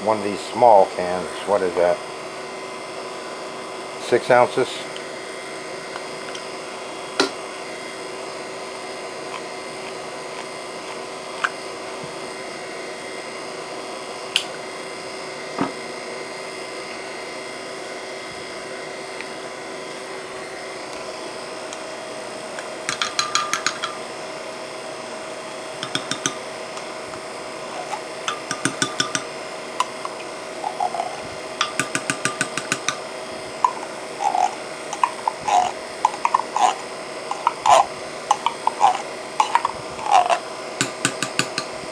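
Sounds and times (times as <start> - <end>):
steady hum: 0.0 - 41.9
spoon scraping tin can: 27.7 - 29.2, 30.6 - 32.8, 33.7 - 41.7.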